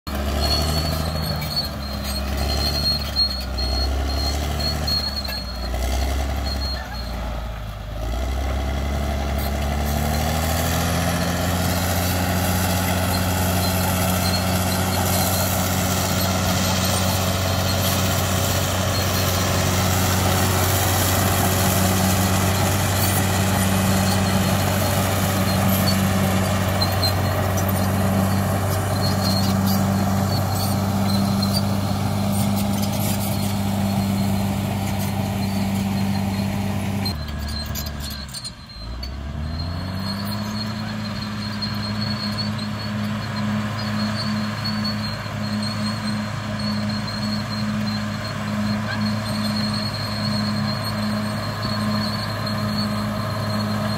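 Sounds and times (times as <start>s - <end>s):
bulldozer diesel engine under load: 0.0s - 53.9s.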